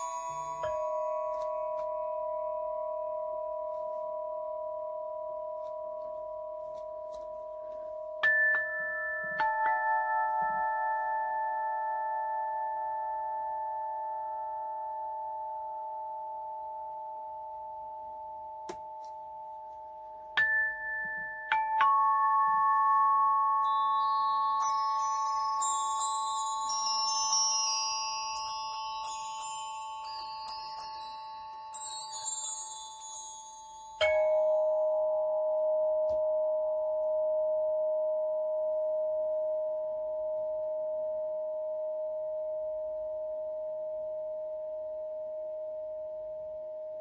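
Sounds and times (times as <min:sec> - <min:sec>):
tinkling bell-like notes: 0:00.0 - 0:47.0.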